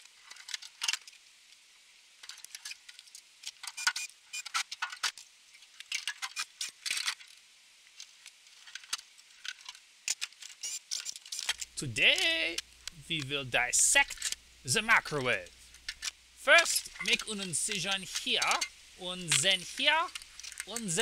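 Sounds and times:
metal parts clinking and rattling: 20.1 - 20.7.

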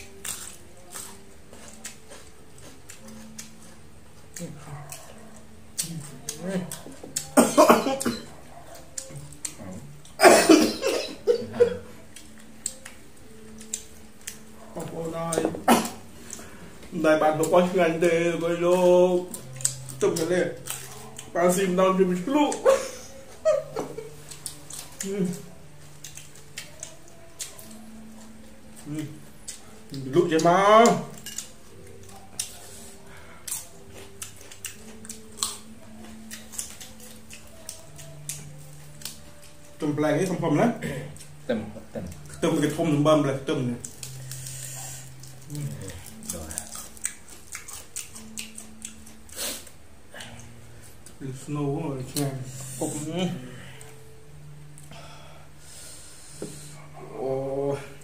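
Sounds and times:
carrot crunching: 0.0 - 53.2
man coughing hard: 7.4 - 8.3, 10.2 - 11.8, 15.6 - 16.0.

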